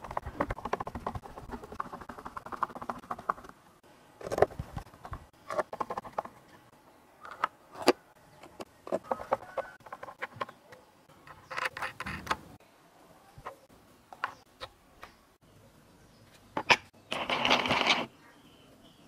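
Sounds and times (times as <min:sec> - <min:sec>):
screwdriver turning and tapping: 0:05.1 - 0:06.4.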